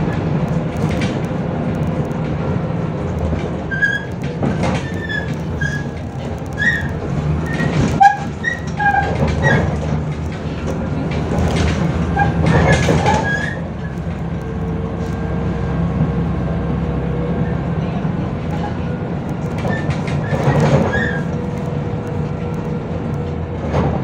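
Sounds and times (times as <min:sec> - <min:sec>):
bus drivetrain and road drone: 0:00.0 - 0:24.0
body squeaks and rattles: 0:03.6 - 0:10.6, 0:11.2 - 0:14.2, 0:19.4 - 0:21.8.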